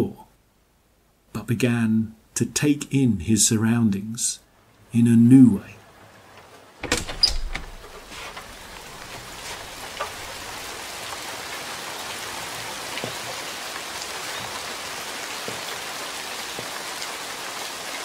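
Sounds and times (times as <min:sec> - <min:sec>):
steady rain falling: 0:00.0 - 0:18.0
door latch clicking: 0:06.8 - 0:08.0.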